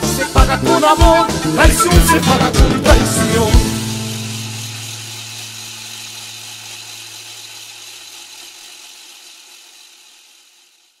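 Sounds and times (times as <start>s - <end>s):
high hissing ring: 0.0s - 10.6s
band chord ringing out: 1.0s - 5.6s.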